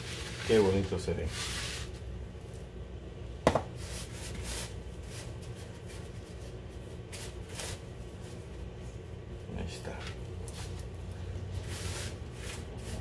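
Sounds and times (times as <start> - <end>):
rustling and scraping in plastic bowl: 0.0 - 2.6.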